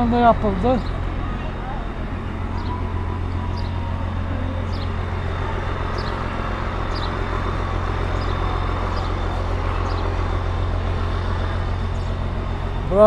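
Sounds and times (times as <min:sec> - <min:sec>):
low vehicle rumble: 0:00.0 - 0:13.0
faint high chirp: 0:02.5 - 0:04.9.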